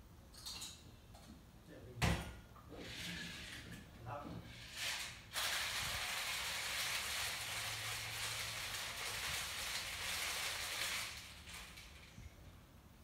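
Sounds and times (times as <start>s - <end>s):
ice rattling in cocktail shaker: 4.8s - 12.1s.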